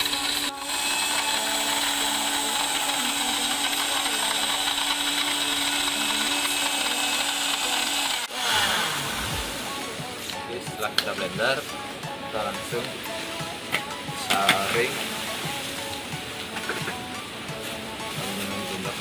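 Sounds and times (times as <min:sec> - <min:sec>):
electric blender running: 0:00.0 - 0:10.3.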